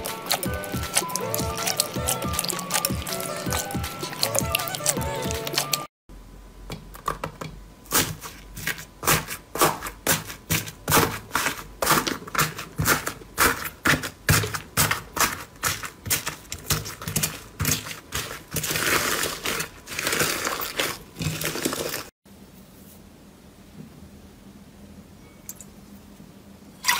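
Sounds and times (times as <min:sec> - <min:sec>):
music: 0:00.0 - 0:05.9.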